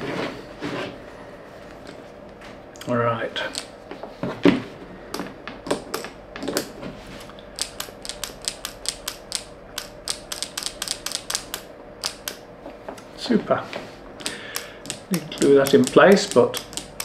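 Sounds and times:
wooden automaton light clicks: 7.6 - 12.4, 14.2 - 17.0.

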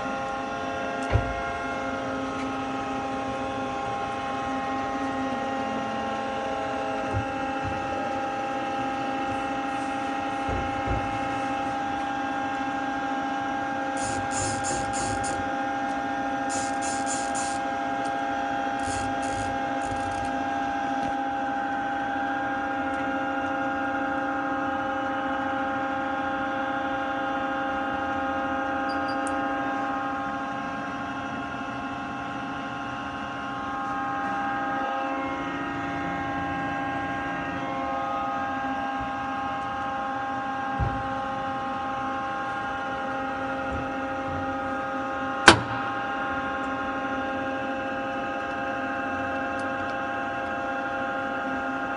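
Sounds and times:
machine hum and whine: 0.0 - 51.9.

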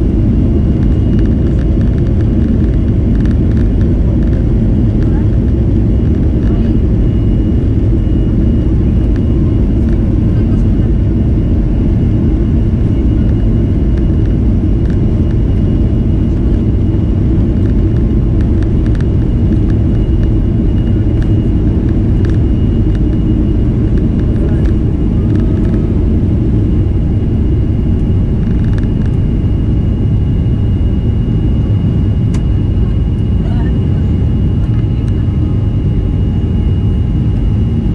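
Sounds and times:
jet engine rumble at takeoff: 0.0 - 37.9
thin steady whine: 0.0 - 37.9.

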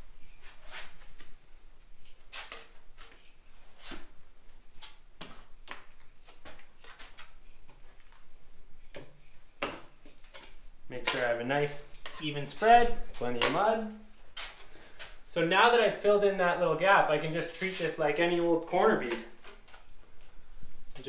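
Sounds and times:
taping knife scraping: 2.0 - 4.1.

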